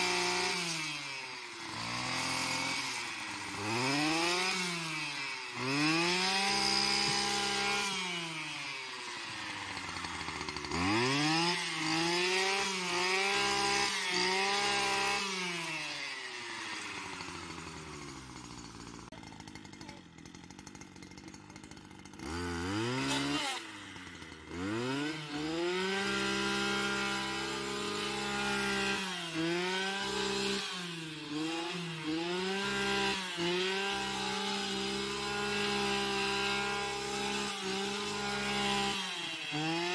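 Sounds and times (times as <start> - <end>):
brush cutter engine revving: 0.0 - 39.9.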